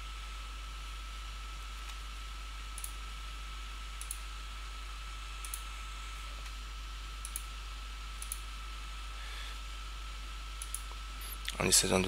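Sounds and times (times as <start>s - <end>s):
faint hum: 0.0s - 12.0s
computer mouse buttons clicking: 8.2s - 8.4s, 10.6s - 10.9s.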